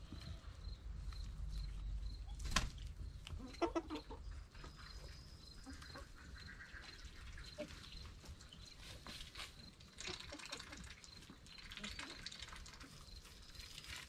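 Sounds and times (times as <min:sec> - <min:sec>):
hens clucking: 0:02.9 - 0:13.0.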